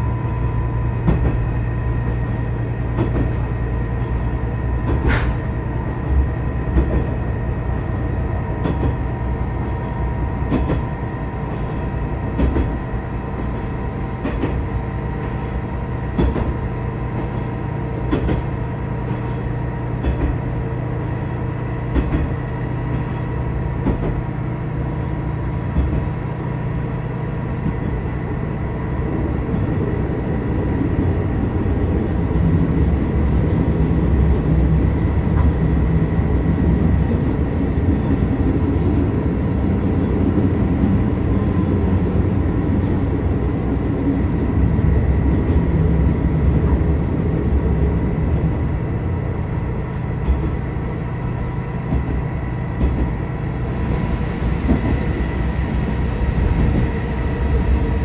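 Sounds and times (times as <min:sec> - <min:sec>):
diesel engine drone: 0:00.0 - 0:16.3
train rumbling from inside: 0:00.0 - 0:58.0.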